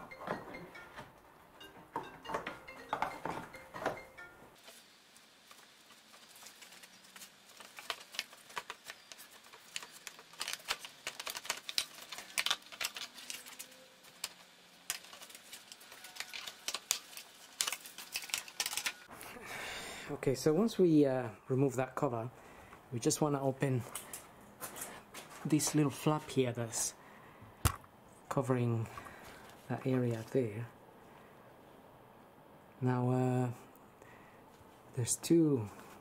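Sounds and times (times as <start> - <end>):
background music: 0.0 - 4.6.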